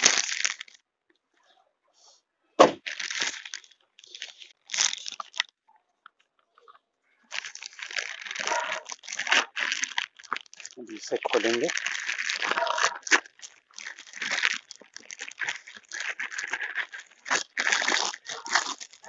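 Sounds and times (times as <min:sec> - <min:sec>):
plastic bag crinkling: 0:00.0 - 0:00.8, 0:02.8 - 0:05.6, 0:07.3 - 0:19.0.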